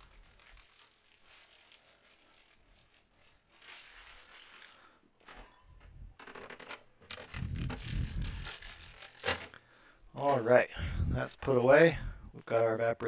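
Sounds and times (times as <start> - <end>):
plastic bag crinkling: 0.0 - 5.0, 7.1 - 9.6.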